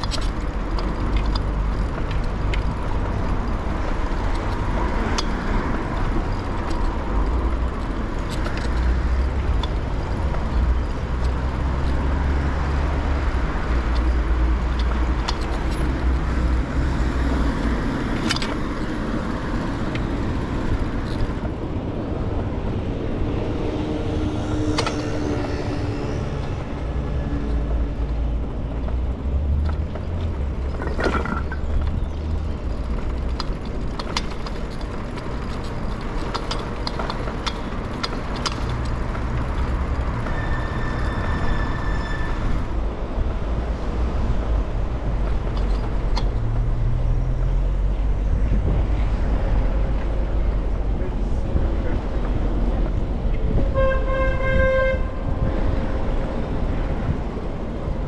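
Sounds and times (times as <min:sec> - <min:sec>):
small clicks and rattles: 0:00.0 - 0:21.6, 0:26.8 - 0:40.4, 0:45.1 - 0:47.6
bicycle rolling noise: 0:00.0 - 0:58.0
wind rumble on microphone: 0:00.0 - 0:58.0
motor vehicle passing: 0:00.5 - 0:34.0.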